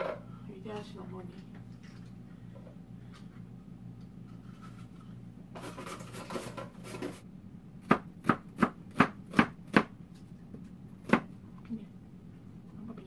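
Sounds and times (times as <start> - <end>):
knife chopping on cutting board: 7.8 - 9.9, 11.0 - 11.3.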